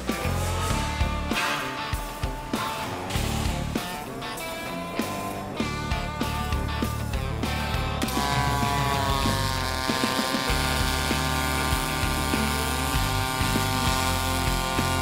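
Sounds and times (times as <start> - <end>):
welding arc hiss: 8.0 - 15.0.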